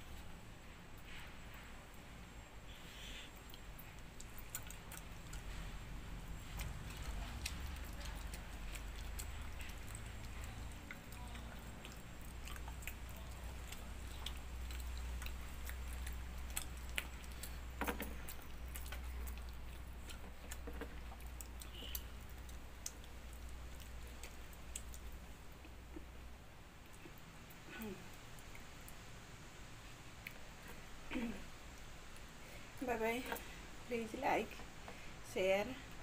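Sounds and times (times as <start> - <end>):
low steady hum: 0.0 - 36.0
person chewing: 2.7 - 26.1.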